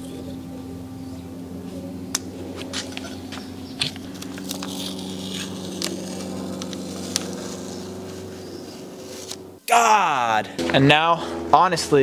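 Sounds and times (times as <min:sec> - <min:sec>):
low hum: 0:00.0 - 0:12.0
masking tape peeling and crinkling: 0:02.6 - 0:09.5.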